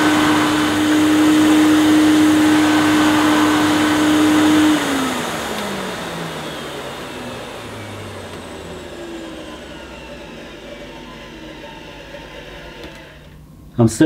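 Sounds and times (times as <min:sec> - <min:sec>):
vacuum cleaner motor winding down: 0:00.0 - 0:13.5.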